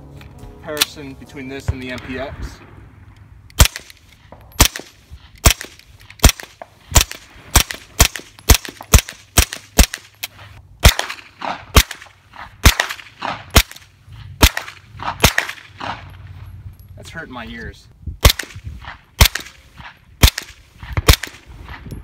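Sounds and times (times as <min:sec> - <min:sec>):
gunshots: 0:03.6 - 0:10.1, 0:10.8 - 0:16.1, 0:18.2 - 0:21.8.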